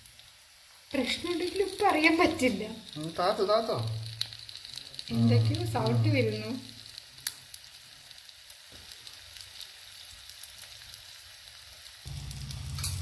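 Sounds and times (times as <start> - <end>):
egg sizzling: 0.0 - 13.0
low steady hum: 12.1 - 13.0.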